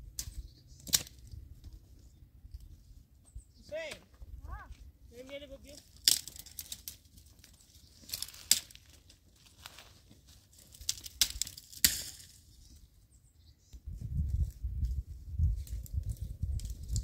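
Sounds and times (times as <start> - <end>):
twigs snapping: 0.2 - 1.4, 5.8 - 9.9, 10.5 - 12.4
dead leaves crackling: 5.2 - 12.5.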